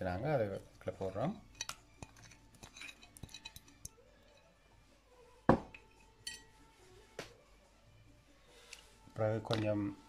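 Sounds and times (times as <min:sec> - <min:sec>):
spoon clinking on glass bowl: 0:01.5 - 0:04.5, 0:05.5 - 0:06.6
glass ringing: 0:05.5 - 0:06.5.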